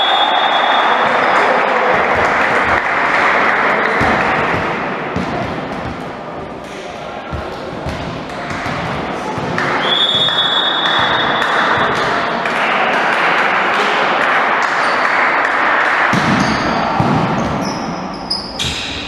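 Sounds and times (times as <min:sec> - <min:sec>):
referee whistle: 0:00.0 - 0:01.3, 0:09.8 - 0:11.5
echoing sports hall din: 0:00.0 - 0:19.0
volleyball hits: 0:03.8 - 0:06.2, 0:07.3 - 0:18.0.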